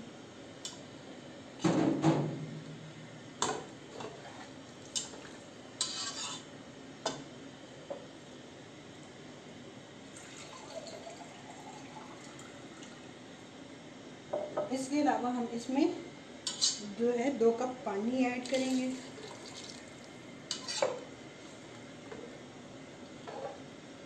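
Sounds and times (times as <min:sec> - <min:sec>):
metal spatula scraping a pot: 0:05.8 - 0:06.5, 0:16.5 - 0:16.8, 0:20.5 - 0:21.0
liquid sloshing in a pot: 0:18.4 - 0:21.0.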